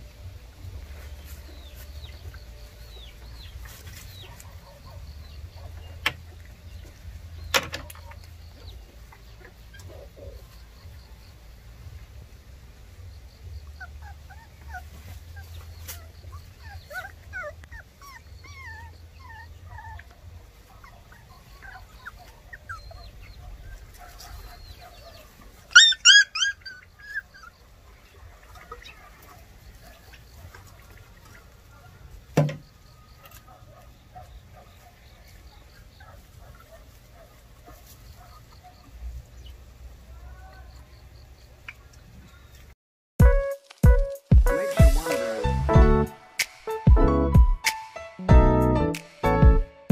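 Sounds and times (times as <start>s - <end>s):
puppies whimpering and squeaking: 13.6s - 28.0s
puppies yelping loudly: 13.7s - 32.2s, 33.1s - 38.8s.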